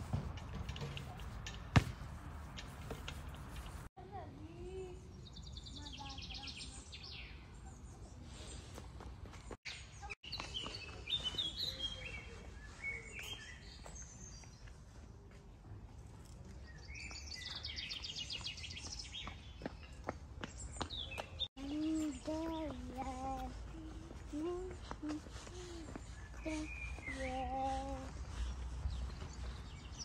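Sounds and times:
songbirds singing: 4.7s - 8.8s, 9.7s - 14.8s, 16.5s - 30.0s.

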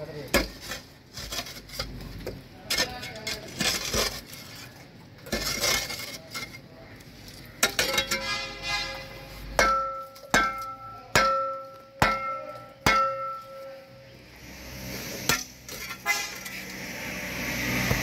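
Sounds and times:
hoe scraping roots and concrete: 0.0s - 18.0s
hoe blade striking metal: 9.6s - 13.8s, 15.2s - 16.7s.

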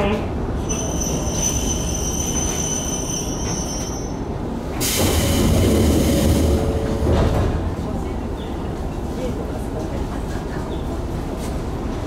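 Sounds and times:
train brakes squealing: 0.6s - 5.2s
air brakes hissing: 4.8s - 6.5s.

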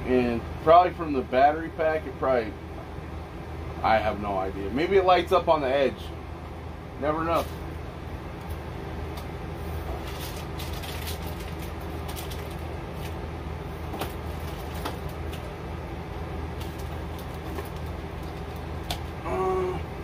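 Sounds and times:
plastic wrapping rustling: 9.8s - 13.2s, 13.9s - 15.5s, 16.6s - 18.9s.

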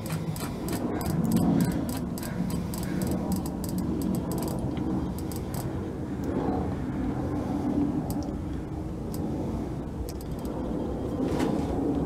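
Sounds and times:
wrench clicking on nut: 0.0s - 4.6s
steady low hum: 0.0s - 12.0s.

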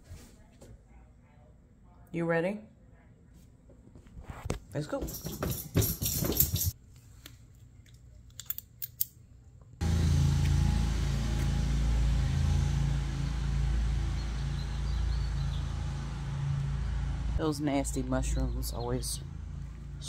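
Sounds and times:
low outdoor hum and rumble: 4.7s - 20.0s
jingle: 5.0s - 6.8s.

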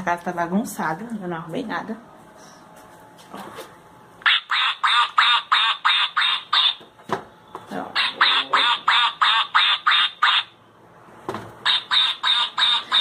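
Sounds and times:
recorded duck quacking: 4.2s - 6.8s, 8.0s - 10.5s, 11.6s - 13.0s.

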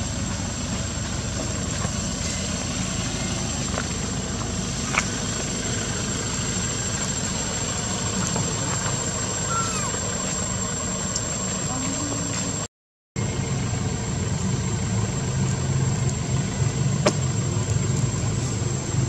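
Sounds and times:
hiss: 0.0s - 4.0s.

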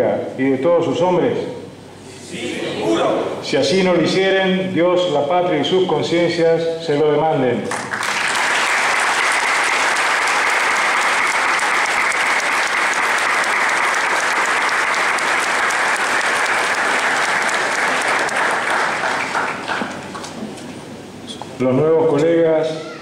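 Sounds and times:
audience applauding: 7.7s - 20.4s.

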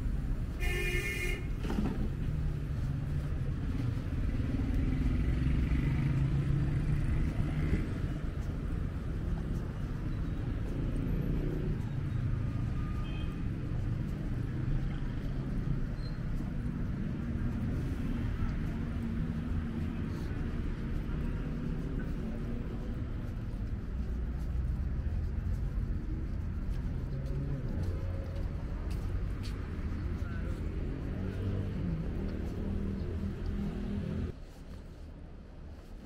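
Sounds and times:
rumble of passing traffic: 0.0s - 36.0s
car horn toot: 0.6s - 1.5s.

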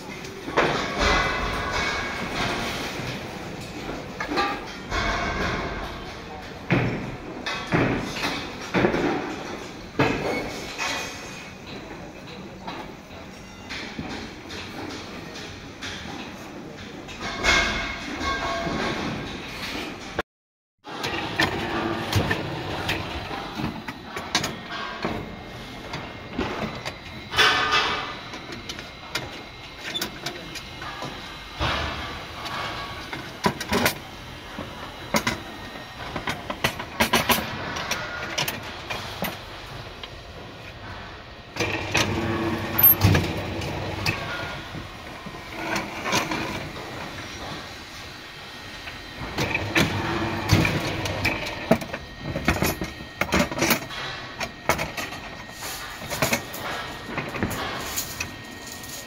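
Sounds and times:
bending machine noise: 20.9s - 59.0s.

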